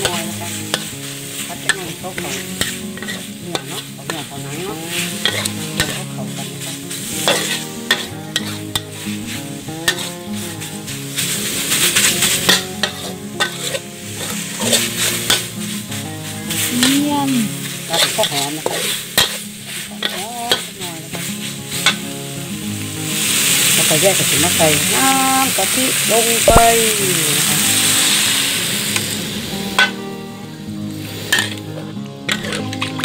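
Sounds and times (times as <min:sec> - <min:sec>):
metal spatula scraping a wok: 0:00.0 - 0:24.6, 0:27.4 - 0:30.0, 0:31.0 - 0:33.0
meat sizzling in a wok: 0:00.0 - 0:33.0.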